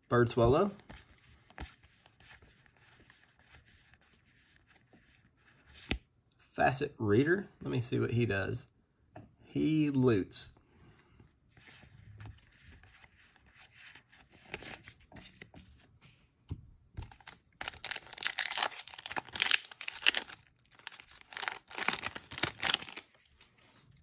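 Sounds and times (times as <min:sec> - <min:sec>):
foil wrapper tearing and crinkling: 0:17.0 - 0:23.3.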